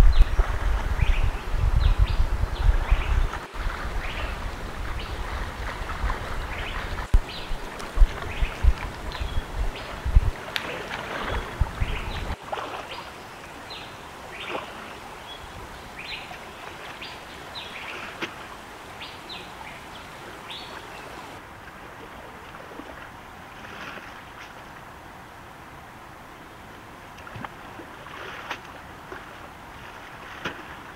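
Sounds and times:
person wading through water: 0.0s - 19.0s, 19.6s - 24.8s, 27.2s - 30.9s
water lapping: 0.0s - 25.0s, 26.6s - 30.9s
small birds chirping: 6.4s - 10.2s, 11.3s - 14.6s.

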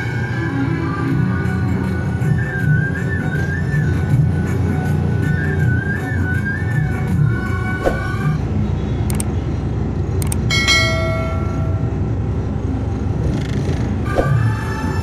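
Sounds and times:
background music: 0.0s - 15.0s
truck engine and road noise: 0.0s - 15.0s
clicks: 9.1s - 9.3s, 10.2s - 10.5s
ringing bell chime: 10.5s - 12.1s.

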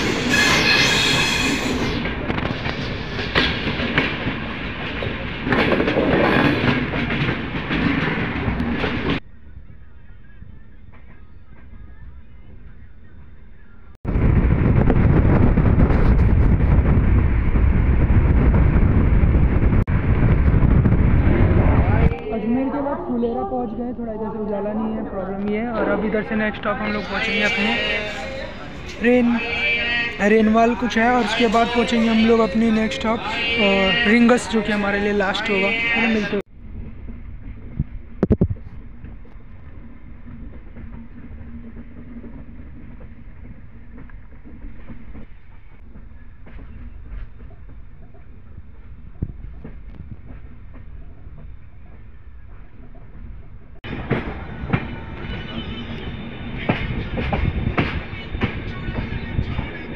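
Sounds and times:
train rumble and rush: 0.0s - 59.9s
wind buffeting microphone: 2.0s - 26.1s, 36.4s - 55.4s, 56.1s - 59.9s.

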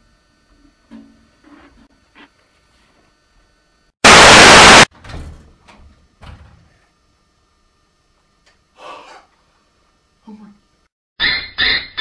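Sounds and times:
loud static hiss burst: 4.0s - 4.9s.

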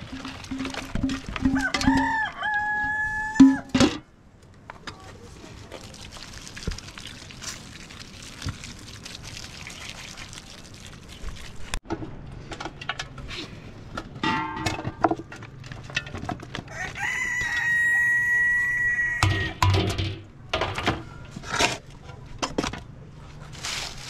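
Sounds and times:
water splashing through colander: 0.0s - 2.6s, 5.5s - 11.8s
rooster crowing: 1.5s - 3.7s, 16.7s - 19.6s.

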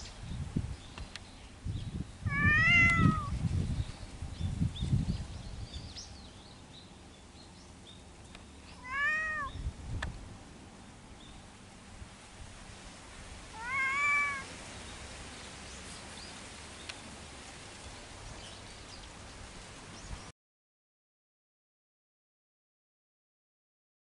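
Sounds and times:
cat meowing: 2.3s - 3.3s, 8.8s - 9.6s, 13.5s - 14.5s.

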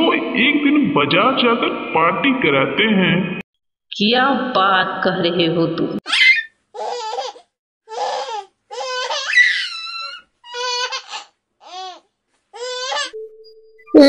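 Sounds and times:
cartoon baby bird squeaks: 6.0s - 7.4s, 8.8s - 11.0s.

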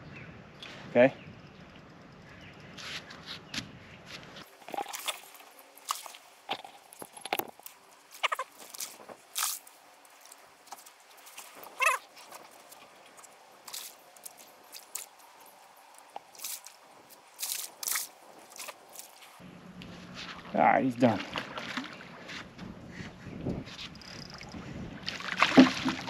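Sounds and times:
fish splashing water: 4.5s - 12.1s, 21.1s - 22.2s, 24.1s - 26.0s.

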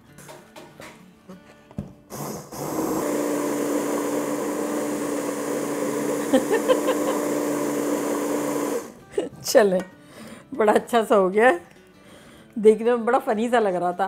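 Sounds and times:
brief louder blender sounds: 2.1s - 9.0s
hand blender motor running: 2.1s - 9.0s.

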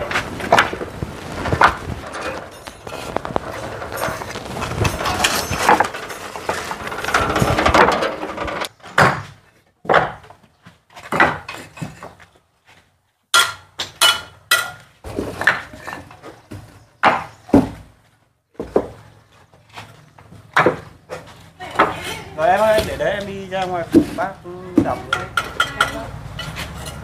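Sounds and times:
scraping and knocking: 0.0s - 12.4s, 18.6s - 27.0s.

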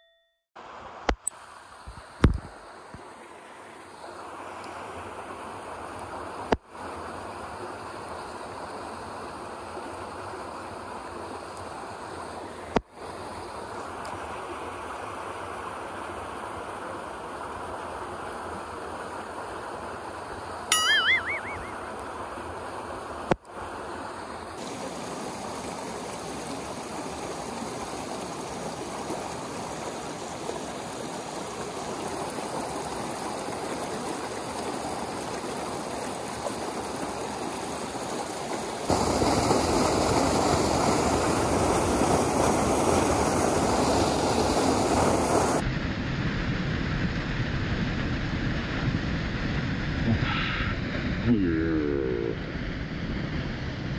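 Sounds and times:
stream running over rocks: 0.6s - 45.6s
water pouring from pipes: 24.6s - 45.6s.

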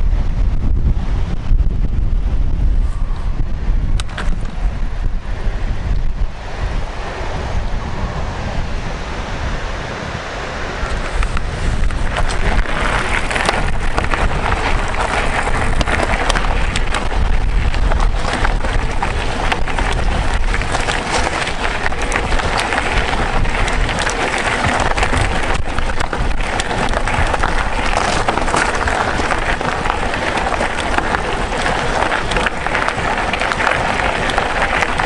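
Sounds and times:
low rumble: 0.0s - 35.0s
bike tyres crackling on stones: 1.4s - 35.0s
small rattles and clicks: 3.9s - 4.7s, 10.8s - 35.0s.

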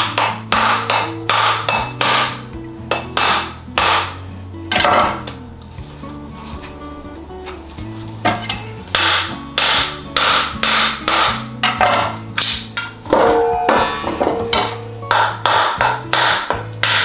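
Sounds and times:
background music with bass line: 0.0s - 17.0s
knife striking coconut shell: 14.5s - 17.0s.

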